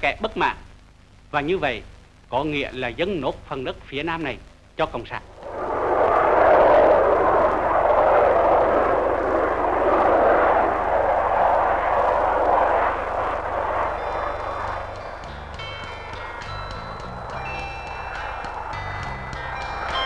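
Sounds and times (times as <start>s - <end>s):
jet engines at takeoff power: 5.2s - 20.0s.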